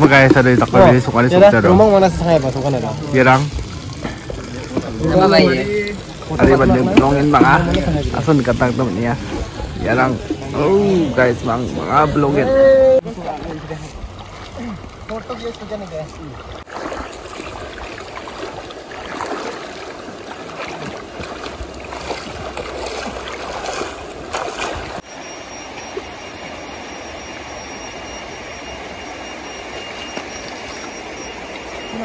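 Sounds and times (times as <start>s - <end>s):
river water splashing: 0.0s - 32.0s
faint high tone: 25.1s - 32.0s.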